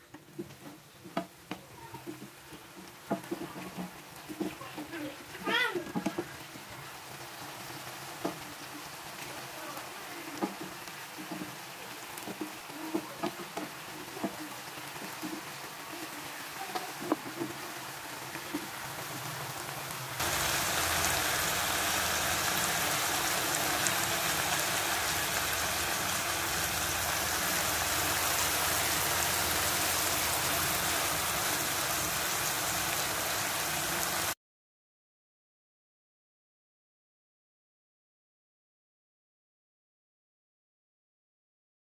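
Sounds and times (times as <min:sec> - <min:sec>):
wooden spatula scraping pan: 0:00.0 - 0:06.6, 0:10.4 - 0:19.3
vegetables sizzling in a wok: 0:00.0 - 0:34.4.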